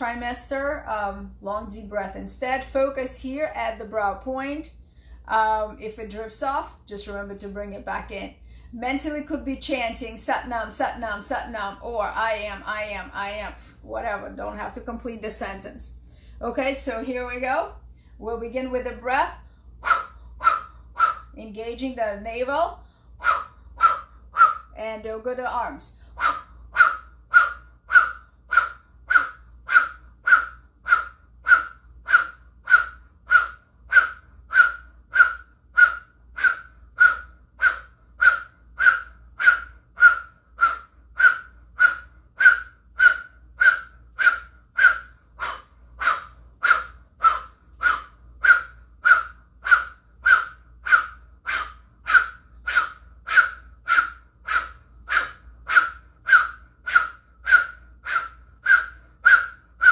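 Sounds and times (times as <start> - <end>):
rapid forceful breath puffs: 26.0 - 59.9.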